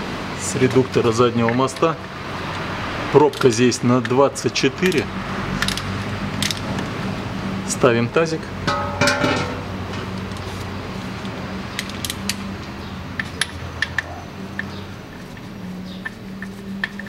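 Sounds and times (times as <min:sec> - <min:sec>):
metal basin ringing: 0:08.6 - 0:09.9.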